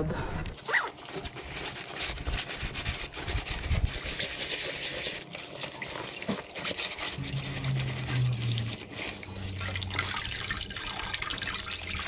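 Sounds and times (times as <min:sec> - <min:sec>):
water sloshing and splashing: 0:03.9 - 0:12.0.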